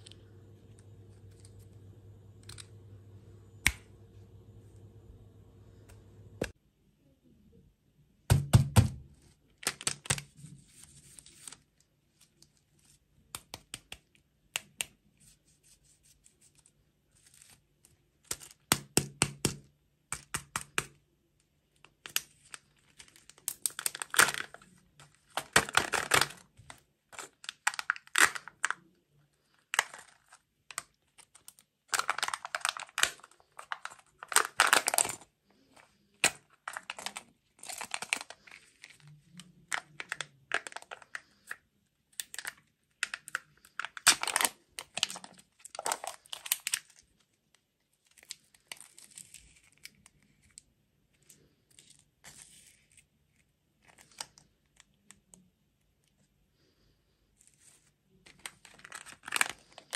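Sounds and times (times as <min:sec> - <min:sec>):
foil wrapper crinkling and tearing: 0:09.6 - 0:13.0, 0:21.8 - 0:55.4, 0:57.5 - 0:59.9.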